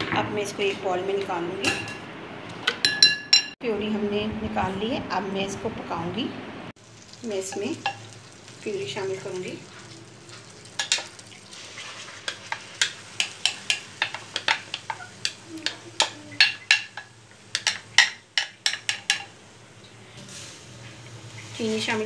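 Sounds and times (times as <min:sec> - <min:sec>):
light sizzling hiss: 0:19.4 - 0:22.0.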